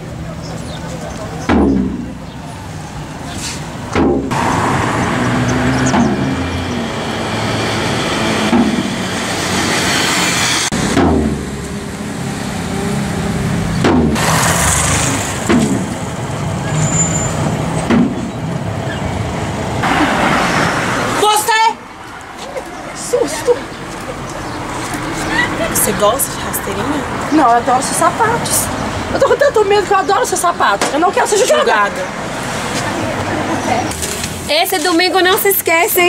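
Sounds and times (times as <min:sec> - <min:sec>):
vehicles passing: 0:00.0 - 0:36.0
sudden knocks: 0:01.5 - 0:02.1, 0:10.9 - 0:11.5, 0:13.8 - 0:14.2
motorcycle passing: 0:04.3 - 0:34.2.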